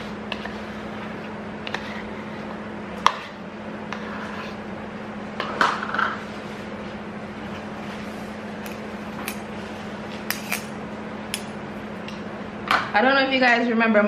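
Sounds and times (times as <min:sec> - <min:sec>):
spoon scraping bowl: 0:00.0 - 0:04.7.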